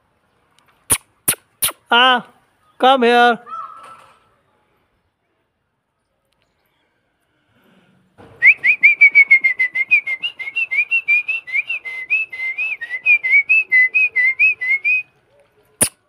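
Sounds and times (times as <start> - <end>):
sharp click: 0.6 - 1.8
rapid mouth whistle chirps: 0.9 - 1.9, 8.4 - 15.1, 15.8 - 16.0.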